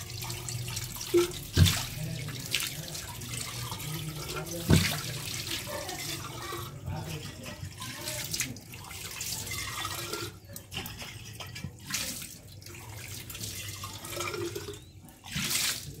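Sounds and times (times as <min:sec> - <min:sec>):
tap water splashing on flask: 0:00.0 - 0:05.6.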